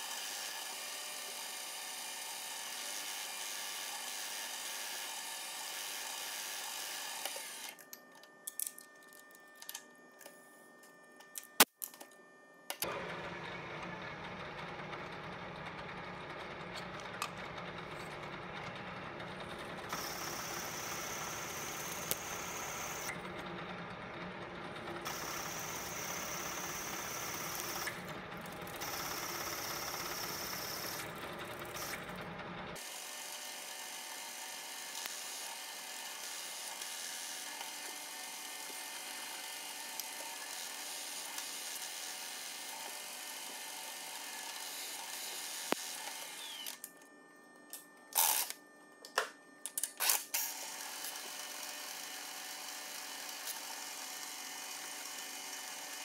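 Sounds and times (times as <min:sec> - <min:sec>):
milling machine cutting metal: 0:16.2 - 0:23.2, 0:25.0 - 0:32.1, 0:32.8 - 0:46.9.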